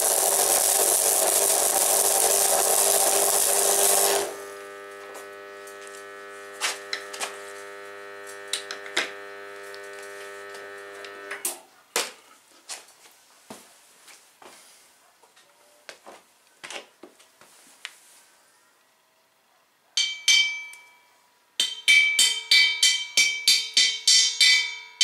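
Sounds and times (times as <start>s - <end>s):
welding arc crackling: 0.0s - 11.5s
welder electrical hum: 0.0s - 11.6s.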